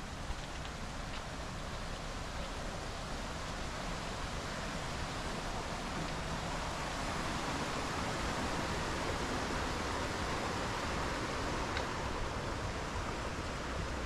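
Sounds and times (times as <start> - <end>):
stream water rushing: 0.0 - 14.0.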